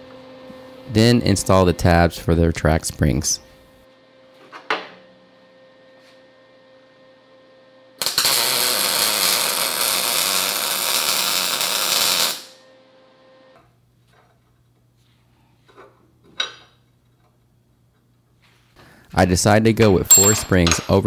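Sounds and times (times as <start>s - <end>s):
welding arc crackling: 8.0s - 12.6s
metallic clinks: 20.1s - 20.6s.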